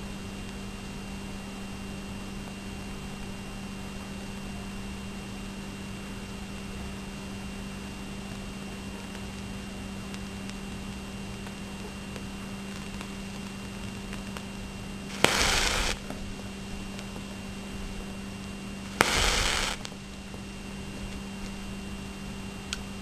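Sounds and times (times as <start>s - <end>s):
match heads igniting: 15.1s - 16.2s, 18.8s - 20.0s.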